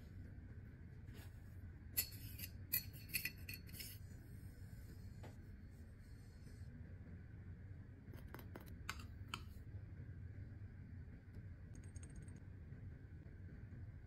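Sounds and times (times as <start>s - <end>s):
low room hum: 0.0s - 14.0s
sharp small clicks: 11.7s - 12.5s.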